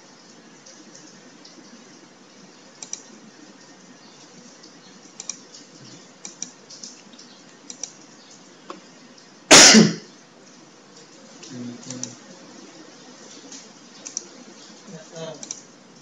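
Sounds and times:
faint room hiss: 0:00.0 - 0:16.0
computer mouse clicking: 0:02.8 - 0:03.1, 0:05.1 - 0:07.0, 0:07.6 - 0:08.0, 0:14.0 - 0:14.3, 0:15.4 - 0:15.7.

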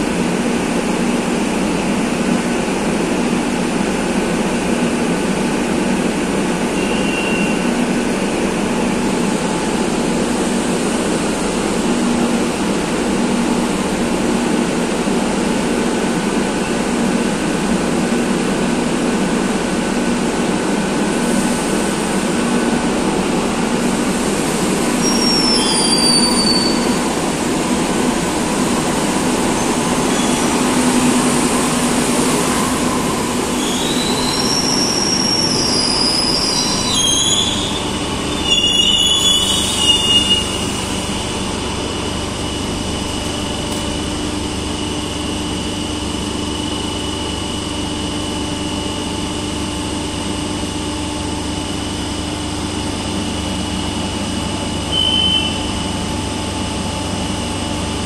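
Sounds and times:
train wheel squeals: 0:06.7 - 0:07.8, 0:24.9 - 0:27.1, 0:29.5 - 0:30.7, 0:32.4 - 0:41.2, 0:54.9 - 0:55.9
electric train pulsing hum: 0:26.7 - 0:58.0.

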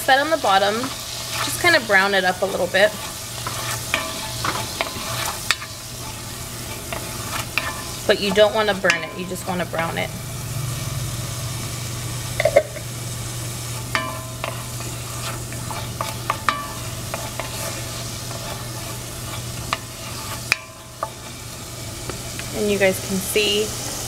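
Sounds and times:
steady low hum: 0:00.0 - 0:23.4
garlic sizzling in hot oil: 0:00.0 - 0:24.0
wooden spatula scraping pot: 0:00.4 - 0:10.0, 0:13.7 - 0:21.5.

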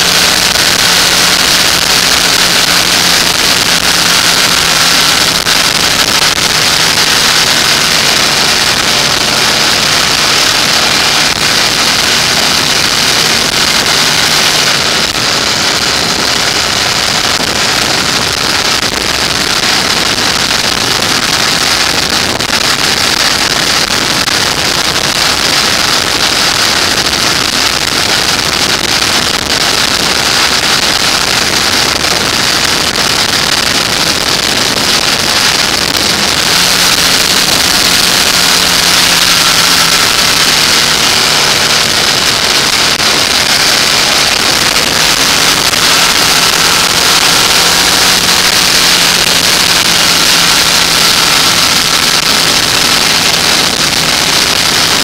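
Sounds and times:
motorcycle engine hum: 0:00.0 - 0:55.0
wind rushing over microphone: 0:00.0 - 0:55.0.

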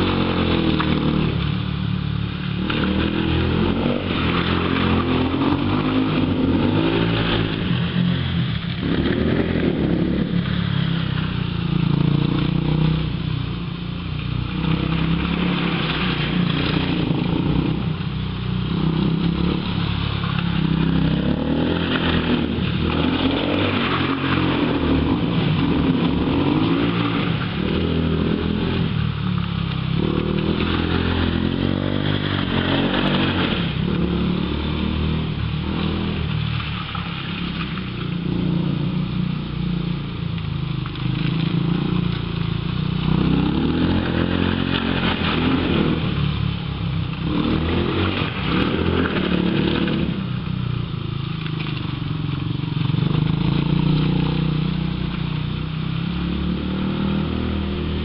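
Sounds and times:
quad engine revving: 0:00.0 - 0:13.4, 0:14.2 - 0:58.0.

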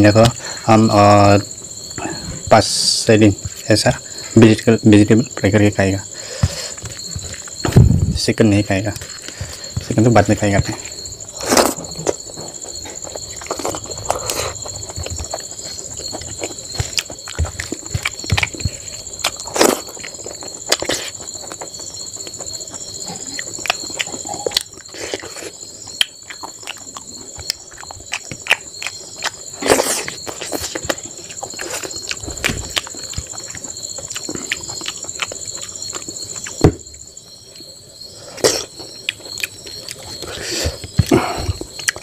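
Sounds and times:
high insect trill: 0:00.0 - 0:42.0
wet chewing and lip smacks: 0:10.8 - 0:36.6, 0:38.4 - 0:41.0, 0:41.6 - 0:42.0.

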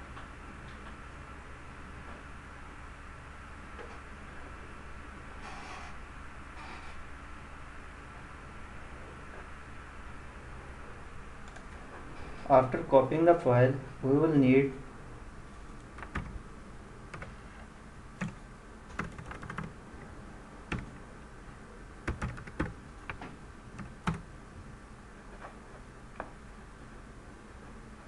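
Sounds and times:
computer keyboard typing: 0:11.4 - 0:11.8, 0:15.8 - 0:16.4, 0:17.1 - 0:17.4, 0:18.2 - 0:19.8, 0:20.7 - 0:21.0, 0:22.0 - 0:24.3.

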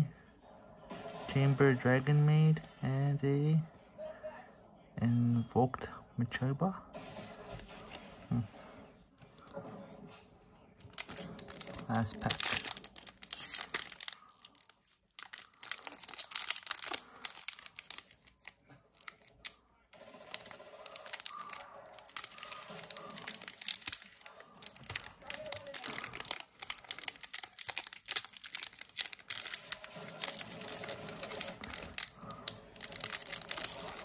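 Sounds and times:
cards being handled: 0:10.8 - 0:19.6, 0:20.2 - 0:34.0
foil wrapper crinkling and tearing: 0:10.9 - 0:34.0.

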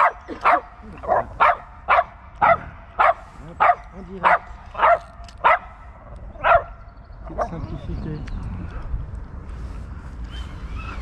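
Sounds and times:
dog barking: 0:00.0 - 0:05.7, 0:06.4 - 0:06.8.

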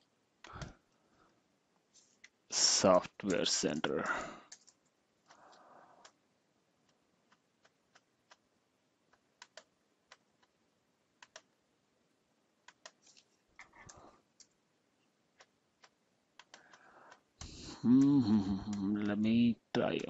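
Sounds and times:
computer keyboard keystrokes: 0:04.5 - 0:06.2, 0:09.4 - 0:10.2, 0:11.2 - 0:11.5, 0:15.4 - 0:17.5.

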